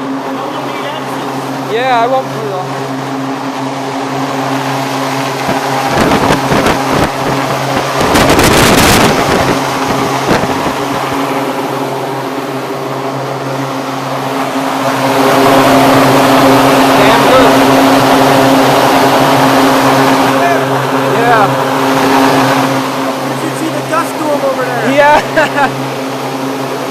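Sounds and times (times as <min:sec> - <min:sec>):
electric fan humming: 0:00.0 - 0:26.9
wind buffeting microphone: 0:02.7 - 0:23.4
air rushing: 0:02.8 - 0:24.3.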